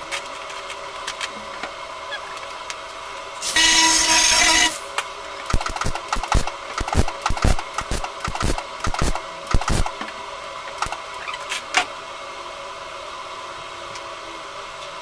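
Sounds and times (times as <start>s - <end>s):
steady hum: 0.0s - 14.7s
welder crackling bursts: 3.4s - 10.0s.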